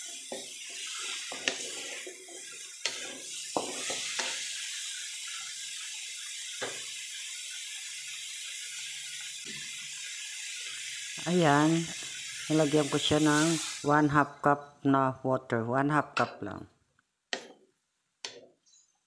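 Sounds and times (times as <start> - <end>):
wooden spatula scraping a pan: 0.0 - 5.6
vegetables sizzling in a wok: 0.0 - 14.4.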